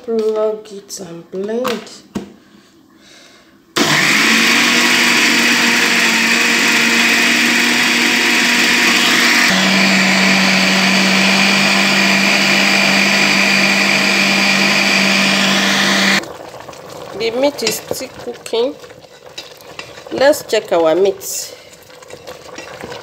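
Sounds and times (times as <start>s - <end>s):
blender motor running: 3.8s - 16.2s.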